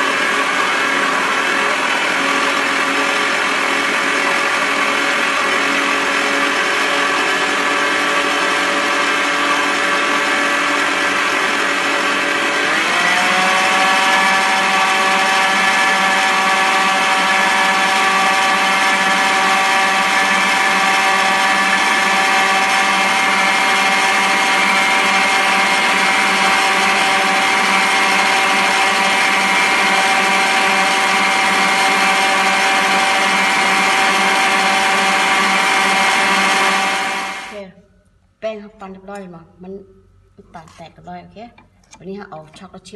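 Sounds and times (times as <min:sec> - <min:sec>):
stand mixer whining: 0:00.0 - 0:37.6.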